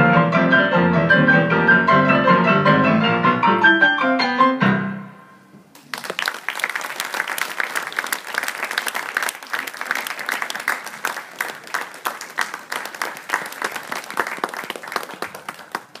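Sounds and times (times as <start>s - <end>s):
audience applauding: 5.8s - 16.0s.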